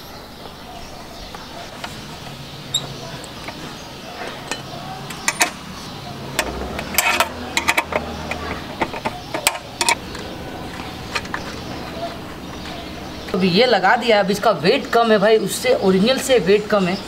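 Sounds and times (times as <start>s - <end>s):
tools clinking on metal: 4.2s - 5.7s, 6.3s - 10.0s.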